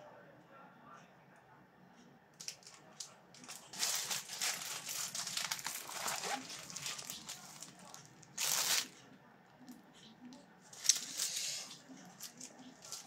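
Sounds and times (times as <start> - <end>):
plastic bag crinkling: 2.4 - 9.0, 10.7 - 13.0.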